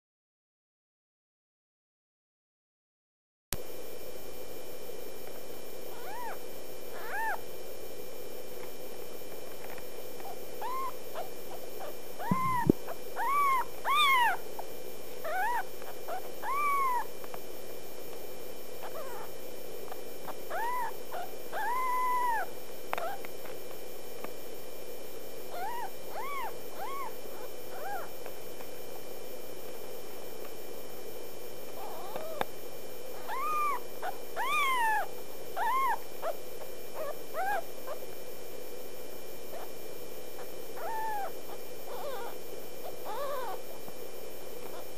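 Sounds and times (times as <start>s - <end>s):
faint hum: 3.6s - 44.9s
kitten mewing: 5.9s - 6.4s, 7.0s - 7.4s, 10.6s - 14.4s, 15.3s - 17.1s, 20.5s - 23.2s, 25.5s - 28.1s, 33.2s - 36.4s, 40.8s - 42.4s, 43.0s - 43.6s.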